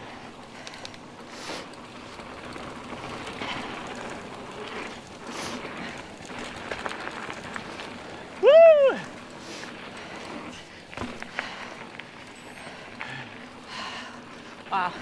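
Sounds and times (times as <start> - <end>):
bike tyres on dirt trail: 0.0 - 15.0
bike rattling clicks: 0.1 - 8.4.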